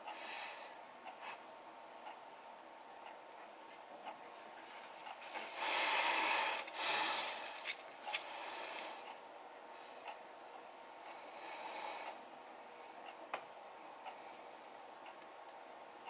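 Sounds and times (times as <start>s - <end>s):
breath-like hissing rushes: 5.5s - 7.6s.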